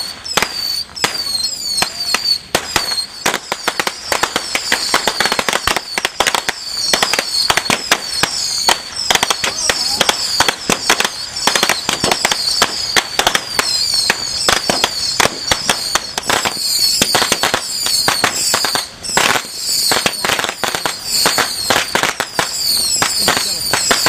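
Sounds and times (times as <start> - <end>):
firecrackers banging: 0.0 - 24.0.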